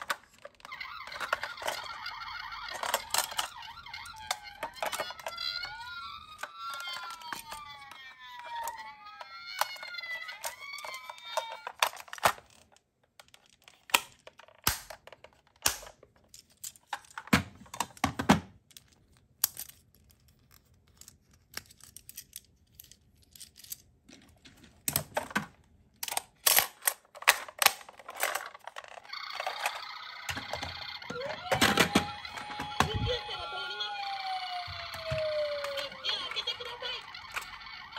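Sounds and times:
plastic toys clicking and knocking: 0.0 - 37.9
toy siren wailing: 0.6 - 12.2, 28.3 - 37.9.

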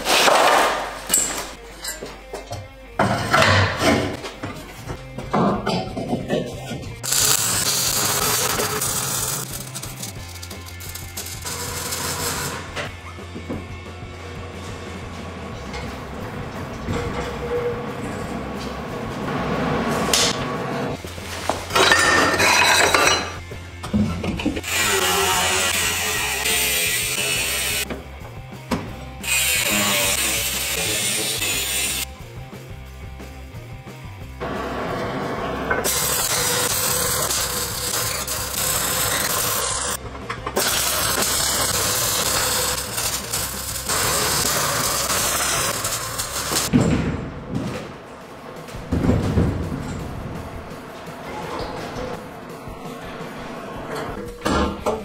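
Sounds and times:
welding arc crackling and hissing: 7.0 - 12.8, 24.6 - 27.9, 29.2 - 32.1, 35.8 - 40.0, 40.6 - 46.7
metal parts clinking and rattling: 21.7 - 23.4.

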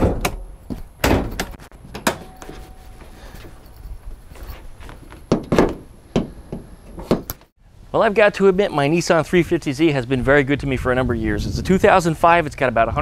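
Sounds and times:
sharp knocks and thunks: 0.0 - 2.6, 5.1 - 7.5.

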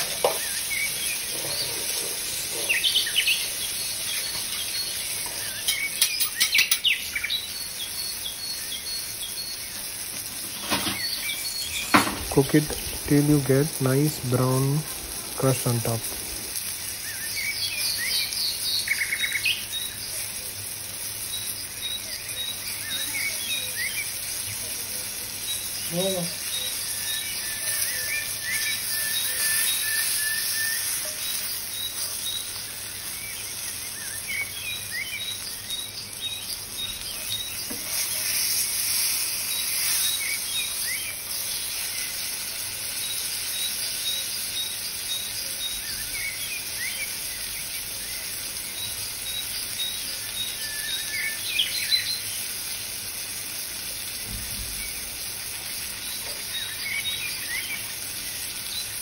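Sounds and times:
birds chirping: 0.0 - 59.0
insects trilling: 0.0 - 59.0
steady high hiss: 0.0 - 59.0.

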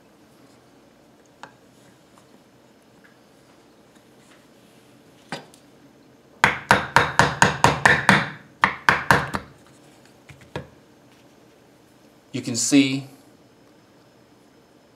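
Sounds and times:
hammer tapping nail punch on metal: 6.4 - 9.5.

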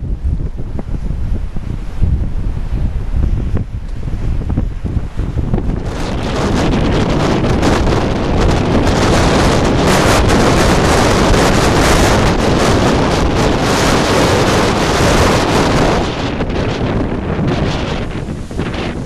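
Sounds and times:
wind blowing on microphone: 0.0 - 19.0
surf breaking on rocks: 4.9 - 19.0.

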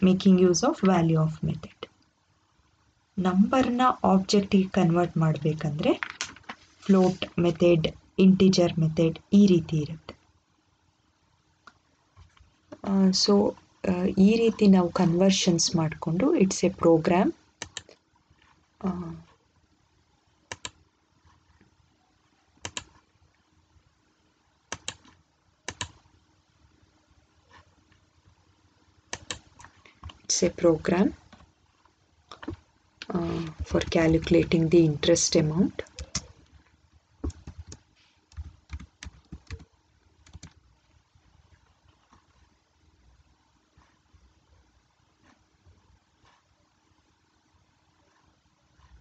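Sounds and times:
keyboard keys clicking: 24.7 - 26.0, 37.2 - 40.6.

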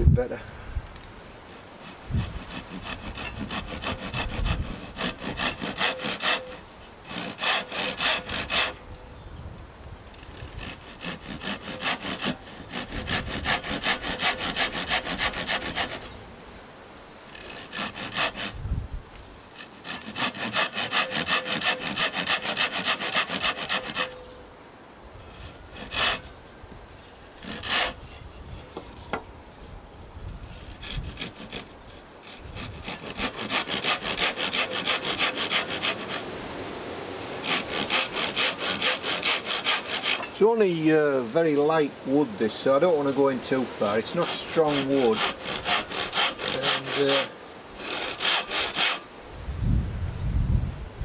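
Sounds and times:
handsaw cutting wood: 1.5 - 8.8, 10.1 - 16.2, 17.3 - 18.6, 19.6 - 24.2, 25.2 - 26.3, 27.4 - 28.3, 30.4 - 36.3, 37.1 - 40.5, 42.9 - 49.1.

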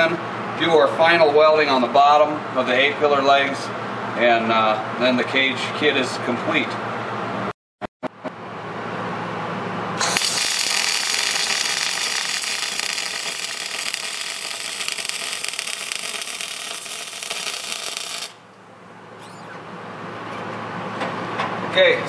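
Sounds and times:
welding arc crackling: 10.0 - 18.5.

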